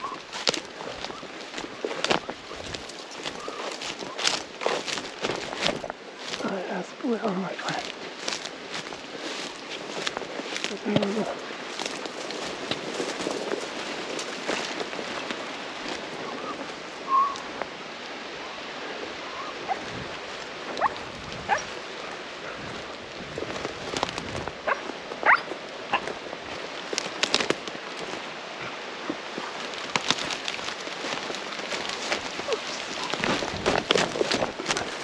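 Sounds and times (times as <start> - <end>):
rustling of dry grass: 0.0 - 35.0.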